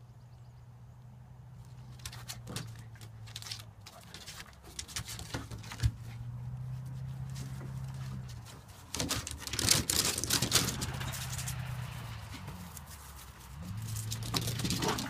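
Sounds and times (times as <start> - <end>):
claws scrabbling on wooden boards: 1.7 - 15.0
dogs play growling: 13.6 - 15.0.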